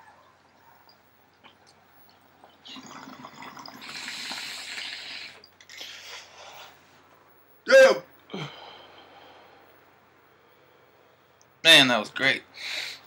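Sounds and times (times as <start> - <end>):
water bubbling in a bong: 2.6 - 5.5.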